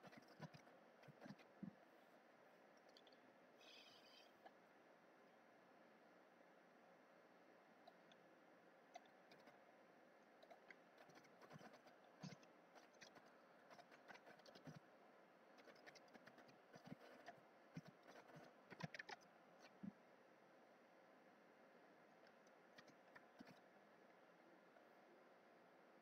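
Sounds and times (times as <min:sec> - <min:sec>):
keyboard typing clicks: 0:15.6 - 0:19.8.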